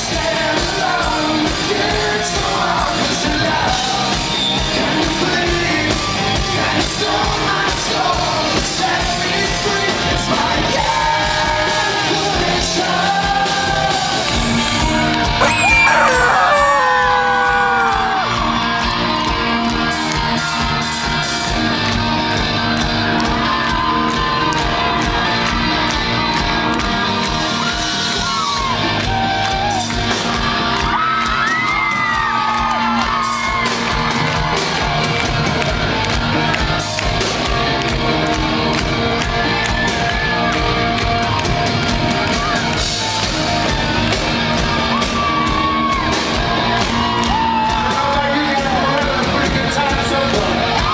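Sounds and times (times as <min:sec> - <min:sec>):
rock song with singing: 0:15.4 - 0:18.2.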